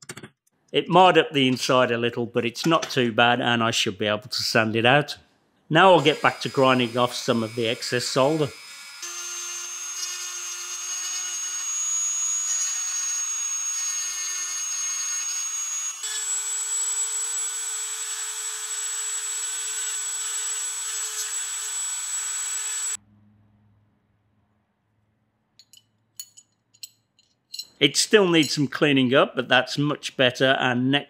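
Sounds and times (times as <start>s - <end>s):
rotary tool grinding metal: 6.0s - 23.0s
light metal clinks: 25.6s - 27.7s.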